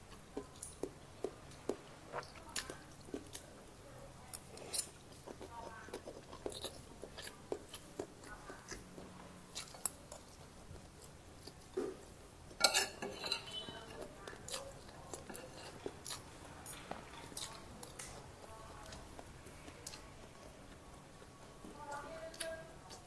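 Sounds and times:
person chewing: 0.0 - 3.6, 4.2 - 12.9, 13.5 - 23.0
cutlery clinking on a plate: 12.6 - 13.9.

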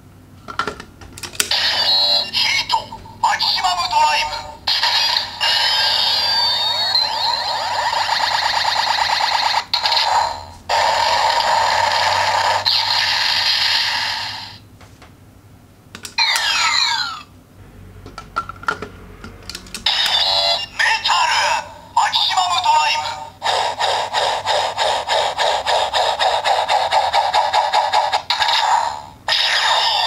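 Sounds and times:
warbling electronic toy tune: 1.5 - 2.9, 5.4 - 8.9, 16.2 - 17.2.

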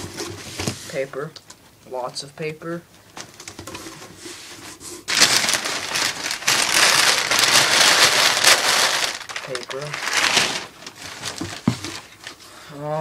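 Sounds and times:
packing paper crinkling: 5.1 - 12.4.

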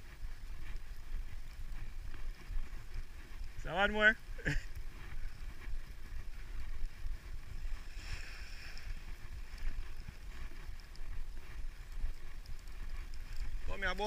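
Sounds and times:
wind rumbling on microphone: 0.0 - 14.0
faint hiss: 7.8 - 9.0.

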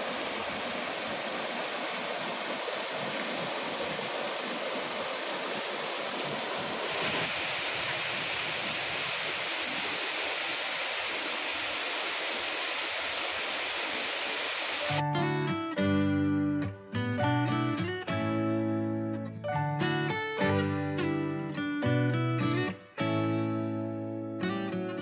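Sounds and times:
water rushing over rocks: 0.0 - 15.0
waterfall rushing: 0.0 - 15.0.

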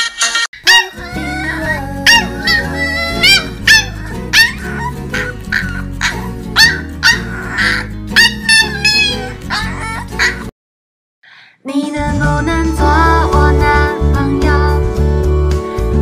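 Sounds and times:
puppy yelping and whining: 0.3 - 10.5
background music: 0.7 - 10.5, 11.7 - 16.0.

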